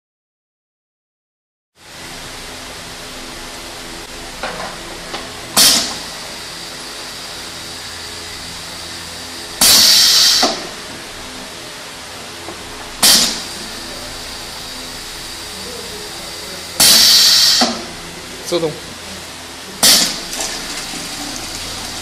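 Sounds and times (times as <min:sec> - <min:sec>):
steady machine hum: 0:01.8 - 0:22.0
compressed air hisses: 0:09.6 - 0:10.6, 0:13.0 - 0:13.6, 0:16.8 - 0:17.8.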